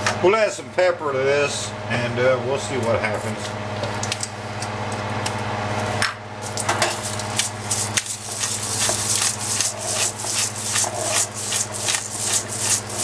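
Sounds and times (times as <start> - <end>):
pepper mill grinding: 6.4 - 13.0.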